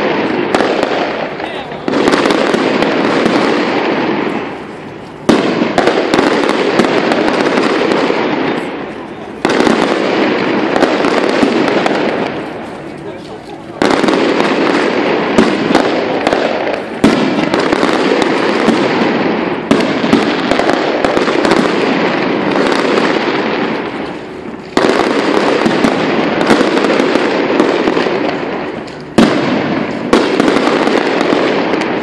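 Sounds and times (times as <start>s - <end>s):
fireworks crackling: 0.0s - 32.0s
fireworks loud bangs: 0.0s - 32.0s.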